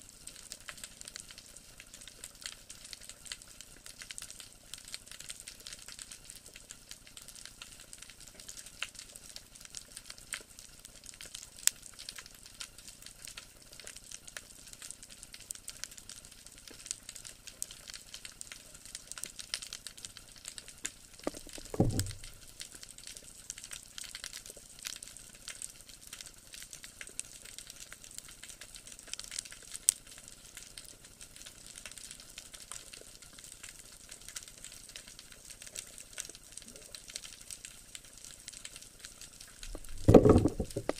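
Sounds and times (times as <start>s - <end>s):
snapping shrimp crackle: 0.4s - 40.9s
brief low thump: 21.3s - 22.4s, 39.8s - 40.9s.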